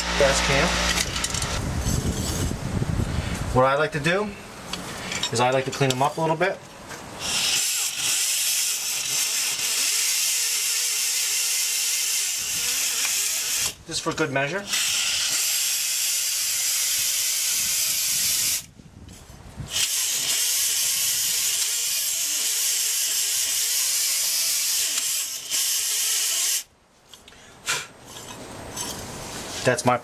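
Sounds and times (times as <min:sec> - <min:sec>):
pneumatic grinder hiss and whir: 0:00.0 - 0:02.6, 0:07.2 - 0:13.8, 0:14.7 - 0:18.7, 0:19.7 - 0:26.7.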